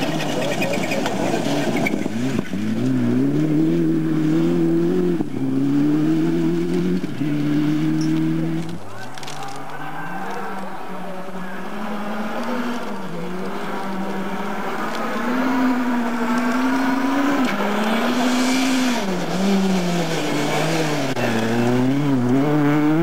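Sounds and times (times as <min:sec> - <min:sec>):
rally car engine at full throttle: 0:00.0 - 0:23.0.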